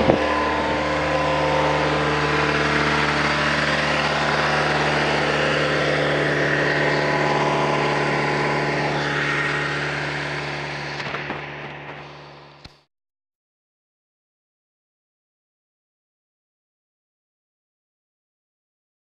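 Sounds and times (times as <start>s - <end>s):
car engine idling: 0.0s - 12.7s.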